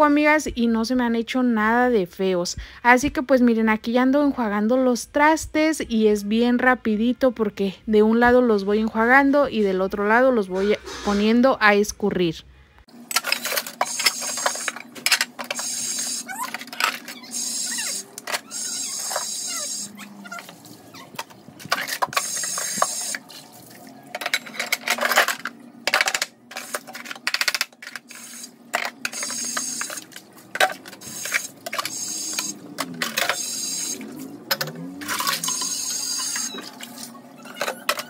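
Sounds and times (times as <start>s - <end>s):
tap water running: 13.6s - 24.6s, 27.9s - 37.2s
water splashing on dishes: 28.8s - 37.2s.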